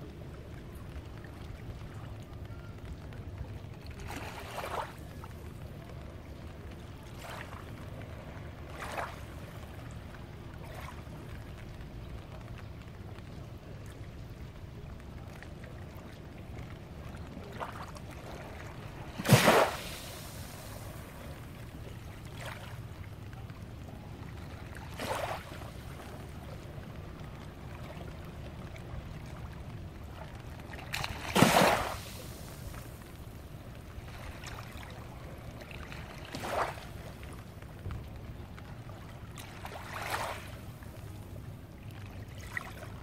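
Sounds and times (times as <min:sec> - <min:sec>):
small waves lapping: 0:00.0 - 0:43.0
steady low rumble: 0:19.9 - 0:31.2.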